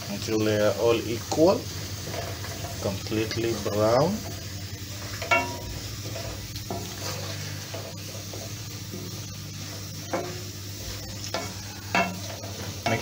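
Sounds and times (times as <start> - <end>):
onions sizzling in oil: 0.0 - 13.0
wooden spatula stirring in pan: 0.0 - 13.0.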